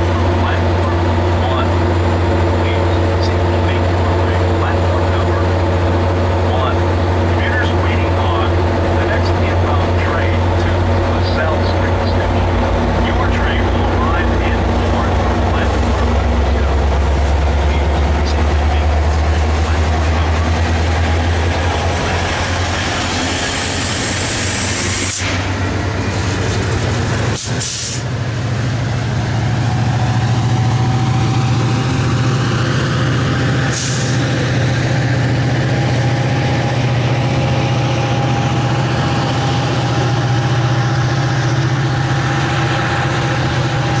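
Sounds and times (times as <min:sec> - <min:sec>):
diesel locomotive engine drone: 0:00.0 - 0:44.0
faint whine: 0:06.5 - 0:26.0
air hisses: 0:27.4 - 0:28.0.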